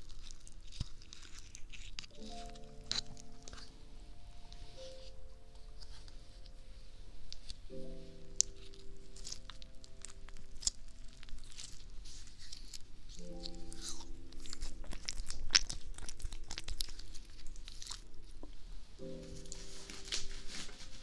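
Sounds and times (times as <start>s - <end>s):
crackling and clicking close to microphone: 0.0s - 3.8s, 7.3s - 19.3s
soft piano chords: 1.9s - 21.0s.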